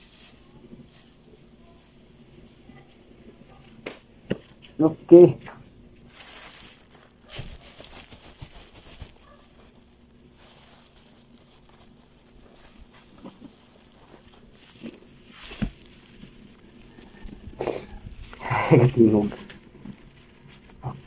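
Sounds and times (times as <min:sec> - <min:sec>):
plastic bag crinkling: 0:06.0 - 0:21.0
plastic bag snap: 0:06.4 - 0:09.2.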